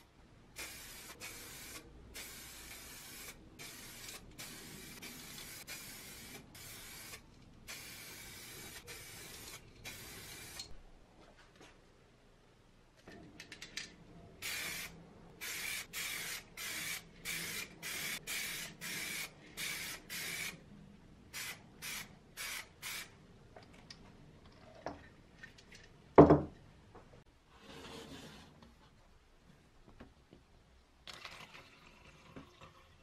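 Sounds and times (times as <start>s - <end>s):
spray can hissing bursts: 0.6s - 10.8s, 14.4s - 20.6s, 21.3s - 23.1s.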